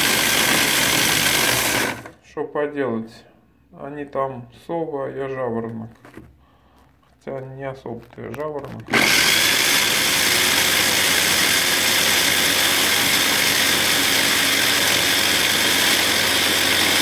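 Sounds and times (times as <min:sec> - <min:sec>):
electric chopper grinding: 0:00.0 - 0:02.1, 0:08.8 - 0:17.0.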